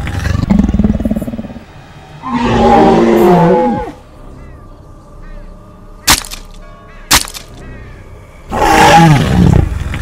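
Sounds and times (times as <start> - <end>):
sharp cracks: 6.0 - 7.6
cartoon dinosaur roar: 8.5 - 9.7.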